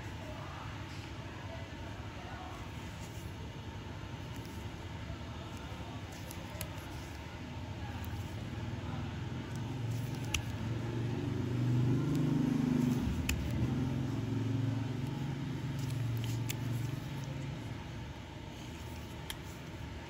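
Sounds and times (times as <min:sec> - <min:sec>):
vehicle engine humming: 0:05.6 - 0:20.0.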